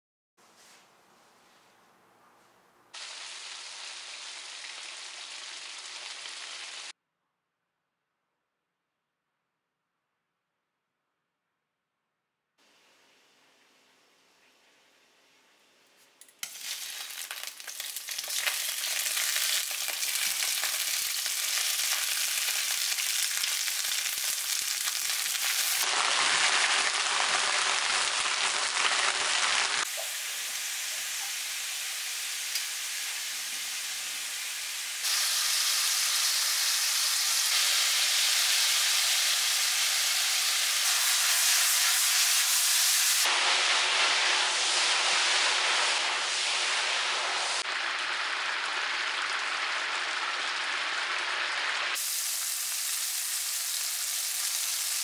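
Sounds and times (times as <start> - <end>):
sausages sizzling in frying pan: 3.0 - 6.9, 16.4 - 55.0.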